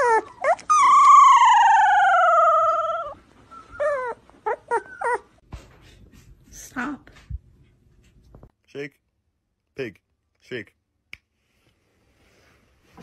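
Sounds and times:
dog whining and howling: 0.0 - 5.4.

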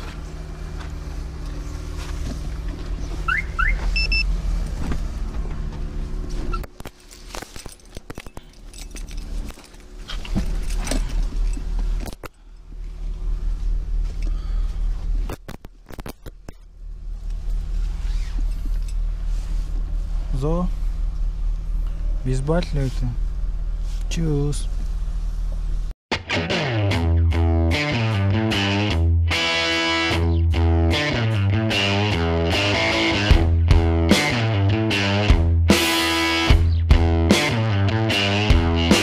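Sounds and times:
car engine idling: 0.0 - 25.9
sharp clicks and handling noises: 6.5 - 12.4, 15.2 - 17.6.

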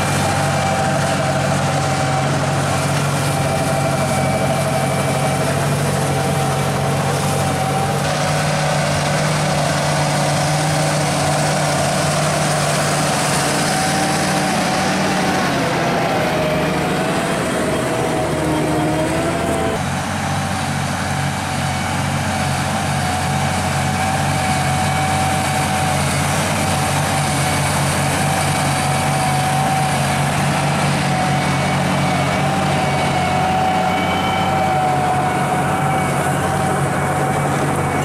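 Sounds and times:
tractor diesel engine under load: 0.0 - 38.0.

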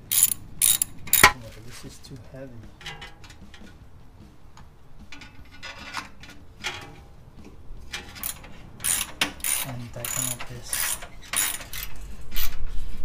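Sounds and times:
metallic clicks and scrapes: 0.0 - 1.9, 5.0 - 7.1, 7.8 - 13.0.

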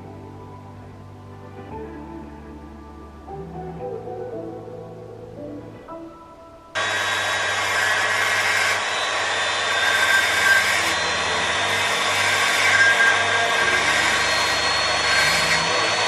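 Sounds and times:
rotary tool whining: 6.8 - 16.0.

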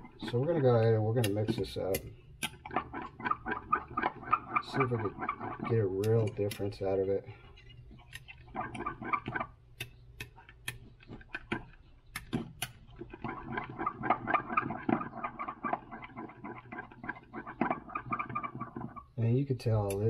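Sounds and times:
scraping and wet swishing: 2.7 - 9.5, 12.8 - 20.0.

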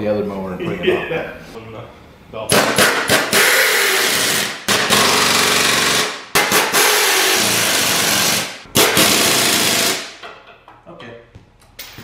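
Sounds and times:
pneumatic impact wrench hammering: 2.5 - 10.3.

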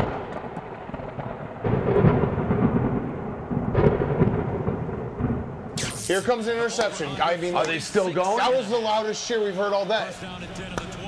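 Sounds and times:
thunder rumbling: 0.0 - 5.8.

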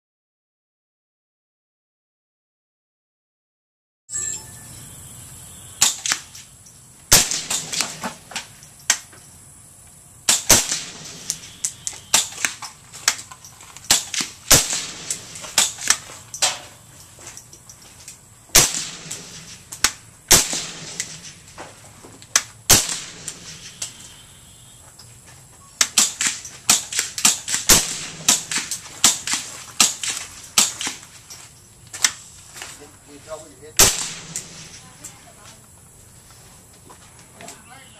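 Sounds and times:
suppressed rifle shots: 5.8 - 6.4, 7.1 - 9.0, 10.3 - 13.3, 13.9 - 16.7, 18.5 - 21.6, 22.3 - 24.1, 25.8 - 31.0, 33.8 - 34.8.

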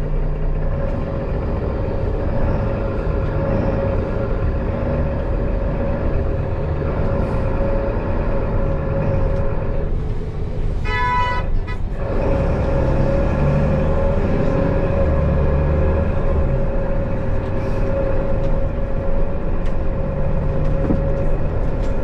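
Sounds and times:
bus engine drone: 0.0 - 22.0
vehicle horn: 10.8 - 12.0.

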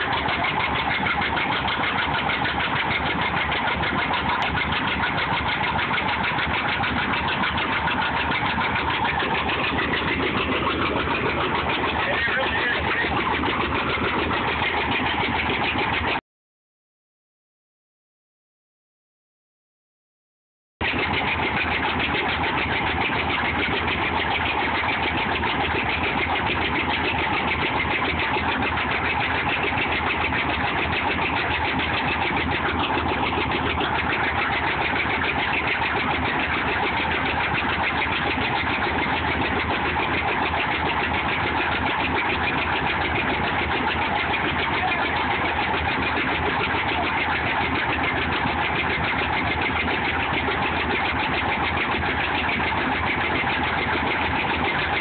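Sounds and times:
threshing machine clattering: 0.0 - 16.2.

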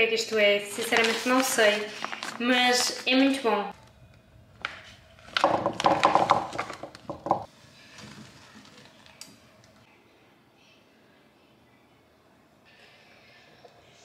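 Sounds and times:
plastic bag crinkling: 0.7 - 3.5.

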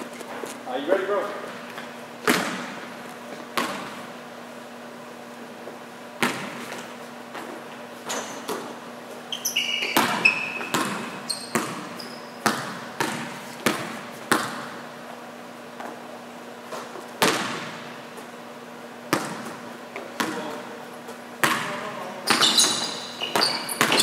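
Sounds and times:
basketball bouncing: 2.2 - 2.8, 3.4 - 4.0, 6.2 - 7.5, 9.8 - 14.8, 16.7 - 17.9, 19.1 - 20.6, 21.4 - 24.0
sneaker squeaks: 6.2 - 14.6, 21.1 - 24.0.

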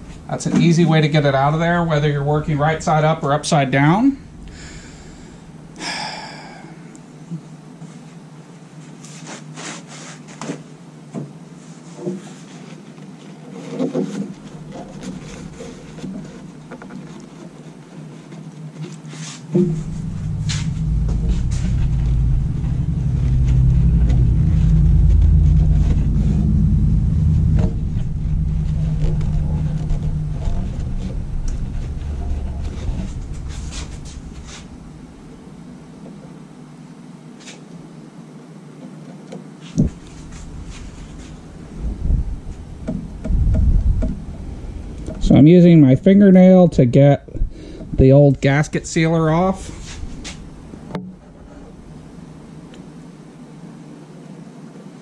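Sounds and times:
low rumble: 0.0 - 7.2, 14.3 - 16.8, 19.6 - 36.4, 39.8 - 46.1, 46.8 - 53.2.

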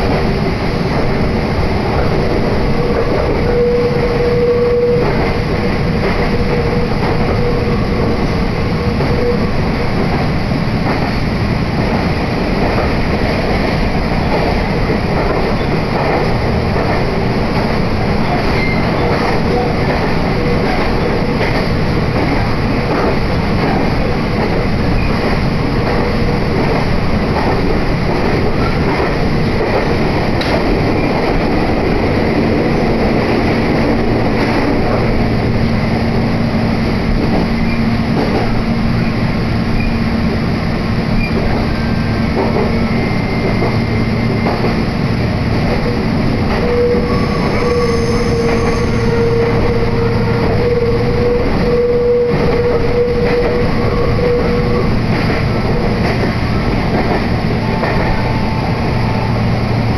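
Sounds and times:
train wheels rumbling on rail: 0.0 - 59.9
humming tone: 2.6 - 9.8, 46.4 - 55.0.

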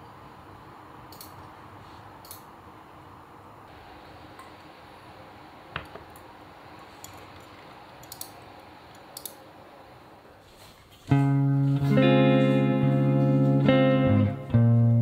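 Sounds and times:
plucked guitar music: 11.1 - 15.0.

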